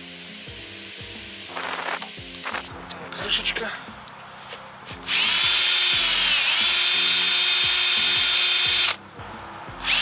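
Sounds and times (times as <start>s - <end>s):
power drill whining: 4.9s - 9.0s, 9.8s - 10.0s.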